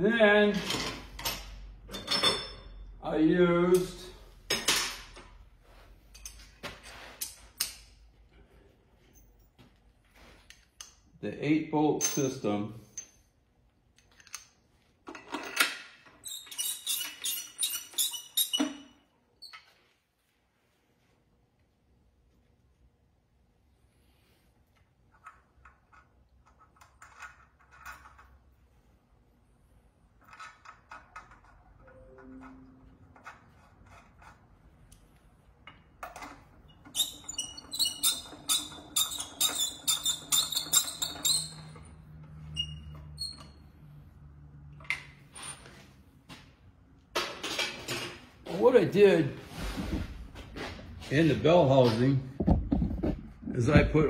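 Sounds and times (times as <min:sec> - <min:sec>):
squeaky metallic tool strokes: 0:16.2 - 0:18.9, 0:36.9 - 0:43.6.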